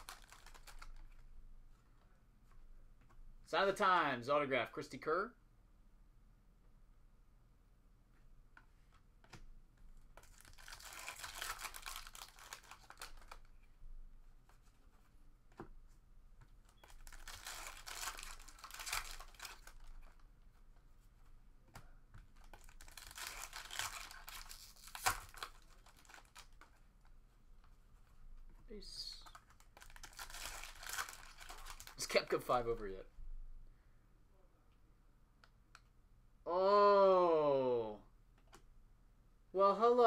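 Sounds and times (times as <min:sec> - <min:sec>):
foil wrappers tearing and crinkling: 0:00.0 - 0:01.0, 0:10.2 - 0:13.4, 0:16.8 - 0:20.2, 0:22.5 - 0:26.7, 0:29.8 - 0:32.1.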